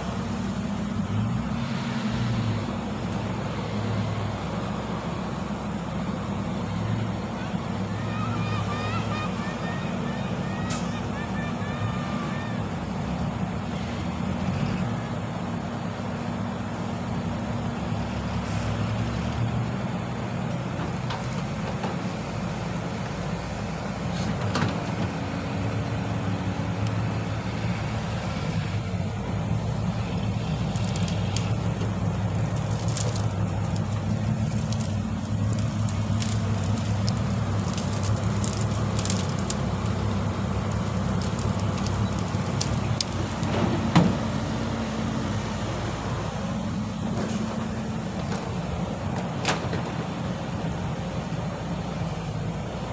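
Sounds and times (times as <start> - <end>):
diesel engines droning: 0.0 - 52.9.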